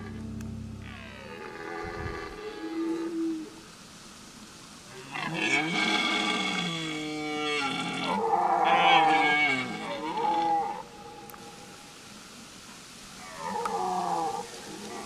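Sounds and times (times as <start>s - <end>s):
deer stag roaring: 0.8s - 3.6s, 5.0s - 11.5s, 13.2s - 15.0s.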